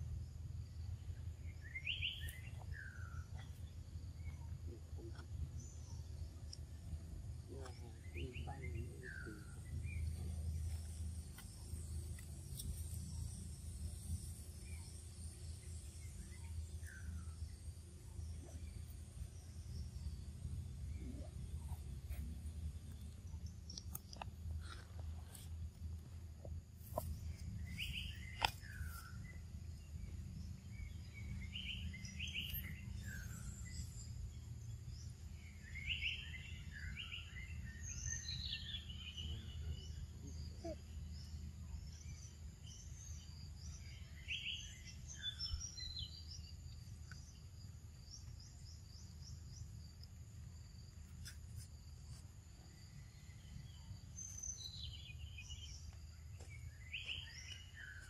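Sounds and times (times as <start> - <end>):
short bird chirps: 30.8 - 34.0.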